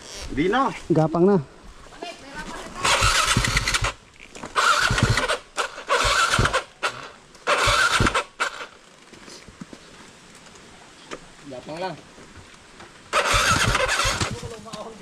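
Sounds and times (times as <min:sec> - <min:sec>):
dirt bike engine revving: 0:02.8 - 0:08.7, 0:13.1 - 0:14.5.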